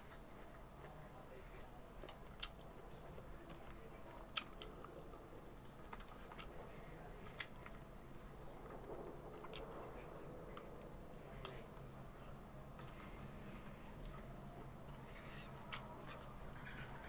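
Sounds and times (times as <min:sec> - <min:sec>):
person chewing: 0:00.1 - 0:08.4.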